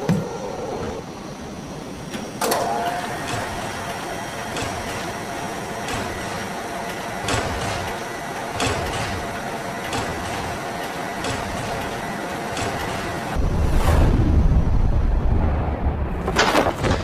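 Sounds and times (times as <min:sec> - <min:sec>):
machine whirring hum: 0:00.0 - 0:17.0
mechanical clack: 0:05.8 - 0:13.4.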